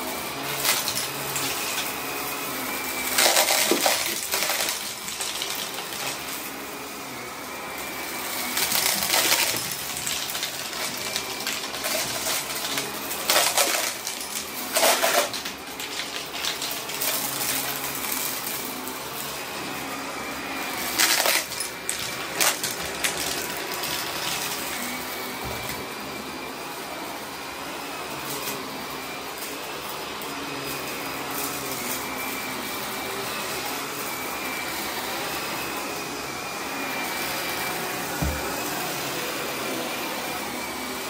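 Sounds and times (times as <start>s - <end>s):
vacuum cleaner running: 0.0s - 41.0s.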